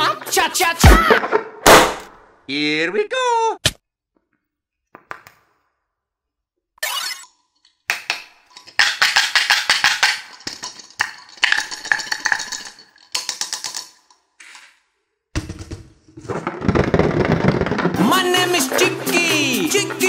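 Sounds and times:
plastic toys clicking and rattling: 8.4 - 14.6
music: 18.0 - 20.0.

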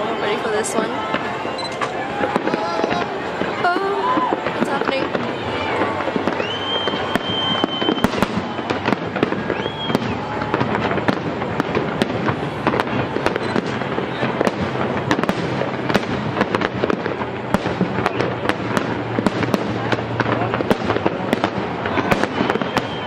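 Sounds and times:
crowd voices: 0.0 - 23.0
fireworks bangs and crackles: 0.0 - 23.0
high steady whistle: 6.2 - 10.4, 21.8 - 23.0.

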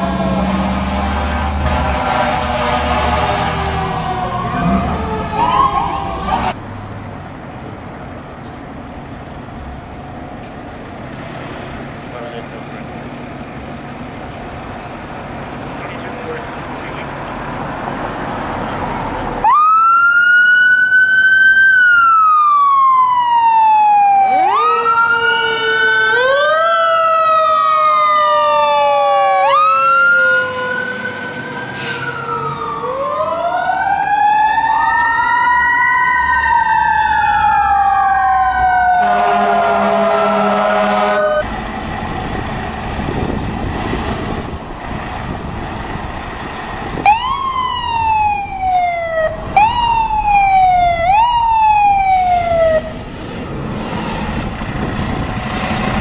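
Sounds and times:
pulsing horn blast: 0.0 - 5.1, 38.9 - 41.5
fire truck sirens wailing: 0.0 - 6.6, 12.0 - 56.0.

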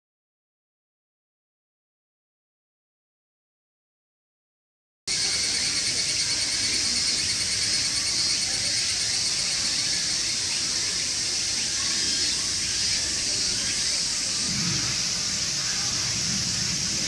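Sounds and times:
insects buzzing shrilly: 5.1 - 17.0
low insect trilling: 5.1 - 17.0.

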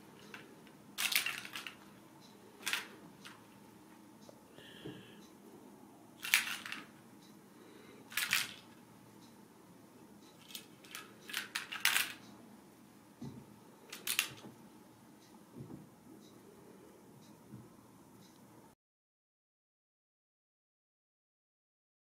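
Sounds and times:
plastic toy ball rattling: 1.0 - 1.8, 2.6 - 3.4, 6.2 - 6.9, 8.1 - 8.7, 10.4 - 12.2, 13.9 - 14.4.

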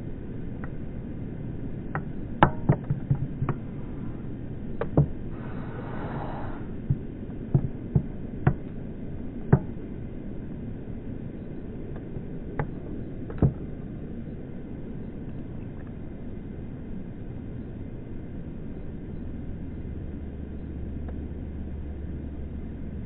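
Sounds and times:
low rumble: 0.0 - 23.0
sharp knocks and clicks: 1.9 - 3.6, 4.8 - 5.2, 6.8 - 8.8, 9.5 - 9.8, 11.9 - 13.7.

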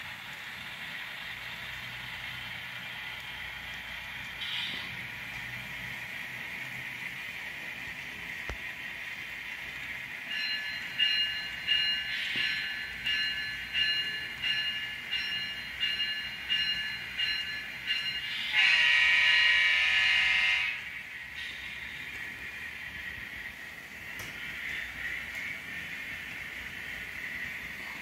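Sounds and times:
locomotive bell ringing: 10.2 - 20.8
locomotive horn blast: 18.5 - 20.9.

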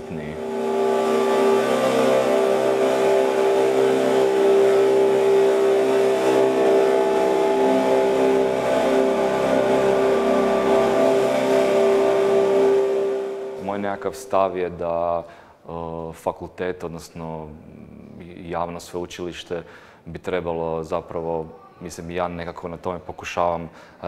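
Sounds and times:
electric guitar drone: 0.0 - 15.3.

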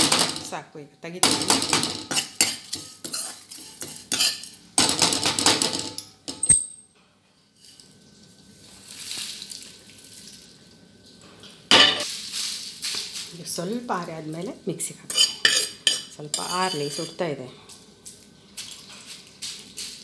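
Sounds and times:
metal ladle scraping pan: 1.3 - 4.6, 15.1 - 17.2.

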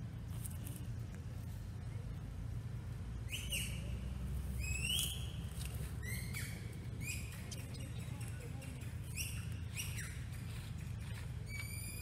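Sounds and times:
steady low rumble: 0.0 - 11.5
high-pitched squeaky calls: 3.3 - 3.9, 6.0 - 12.0.

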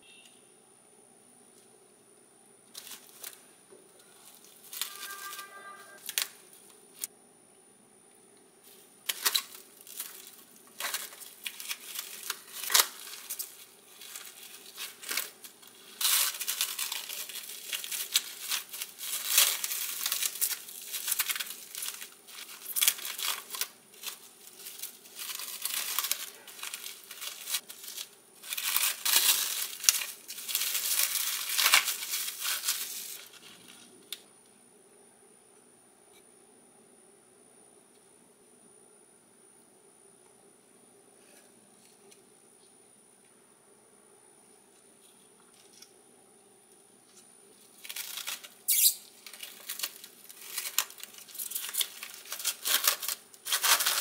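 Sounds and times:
cling film crinkling: 2.7 - 3.4, 4.0 - 7.1, 8.7 - 34.2, 47.5 - 54.0.

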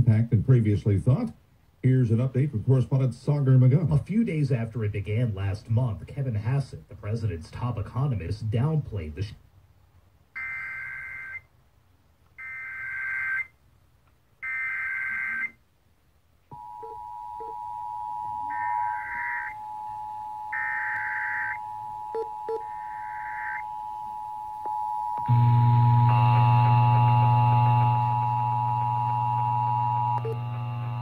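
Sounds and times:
two-tone attention signal: 16.5 - 26.4
screechy digital data bursts: 18.4 - 19.6, 22.5 - 23.6.

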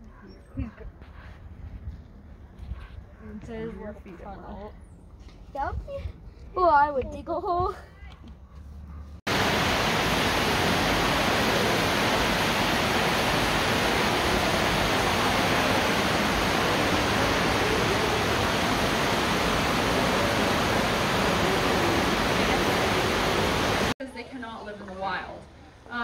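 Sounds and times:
steady rushing noise: 9.3 - 24.0.

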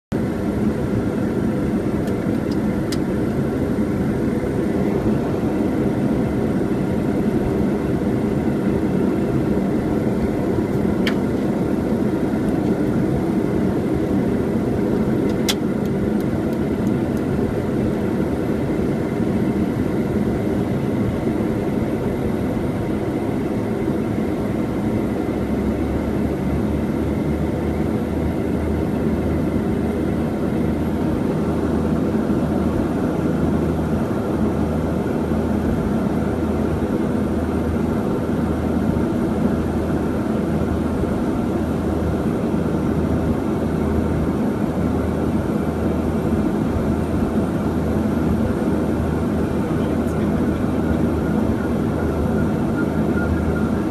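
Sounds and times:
turboprop engines running: 0.1 - 53.9.

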